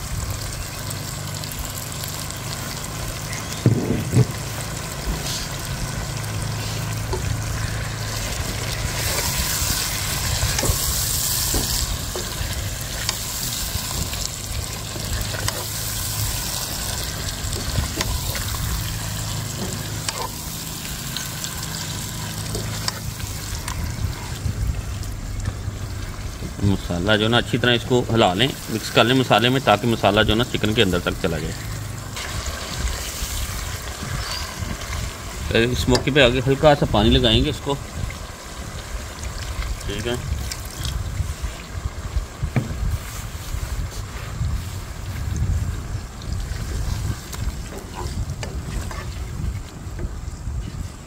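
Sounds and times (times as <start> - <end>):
chicken sizzling in hot oil: 0.0 - 51.0
loud thumps: 3.6 - 5.2.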